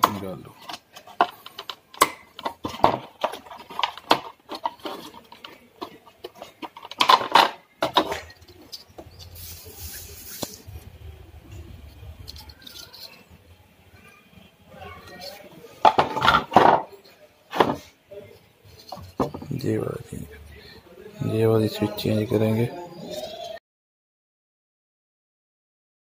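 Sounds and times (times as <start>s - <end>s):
plastic clicks and scrapes: 0.0s - 10.7s
circuit board rattling: 0.0s - 14.2s, 14.9s - 19.9s.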